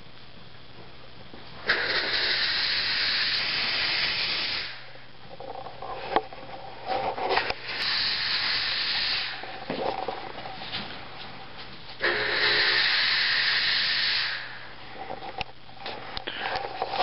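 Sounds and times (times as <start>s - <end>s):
fog machine hissing: 1.6s - 5.1s, 7.3s - 10.6s, 11.4s - 15.1s.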